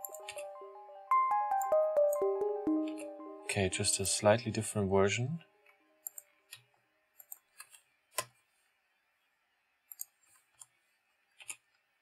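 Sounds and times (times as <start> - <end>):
computer mouse and keyboard clicks: 6.0 - 8.4, 9.9 - 11.8.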